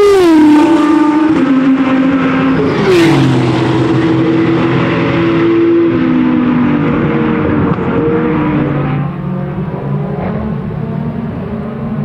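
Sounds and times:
racing car engines revving: 0.0s - 12.0s.

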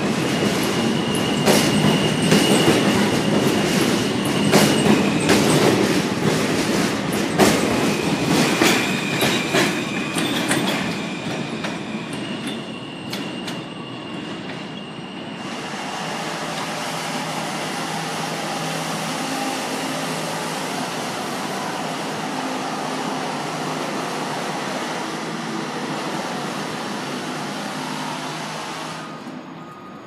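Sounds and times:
train wheels rumbling on steel: 0.0s - 14.8s
train wheels clicking over rail joints: 0.4s - 13.6s.

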